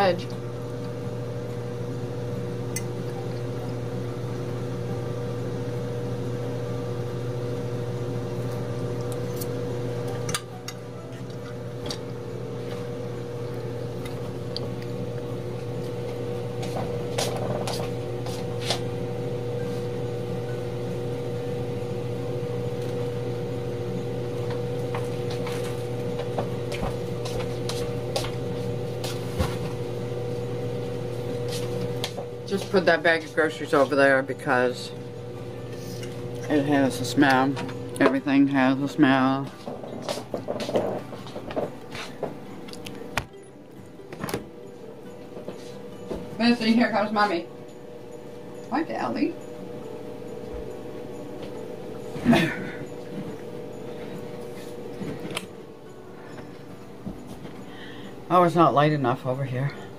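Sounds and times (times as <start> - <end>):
electrical hum: 0.0 - 59.9.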